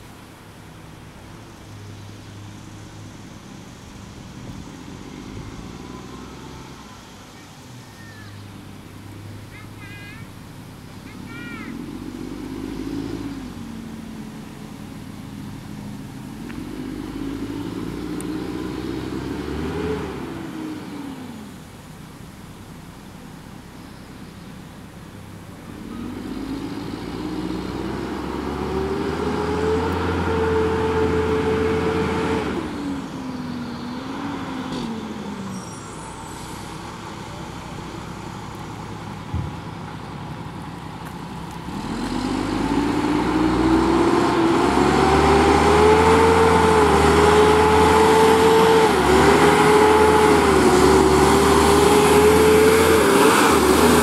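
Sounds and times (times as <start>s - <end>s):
garbage truck diesel engine revving: 0.0s - 7.2s, 10.7s - 22.0s, 24.9s - 54.0s.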